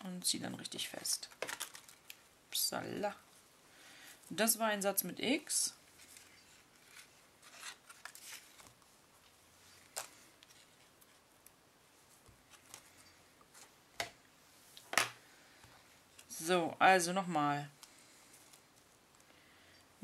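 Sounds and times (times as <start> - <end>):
rustling of ribbon and paper: 1.0 - 2.3, 5.7 - 13.8.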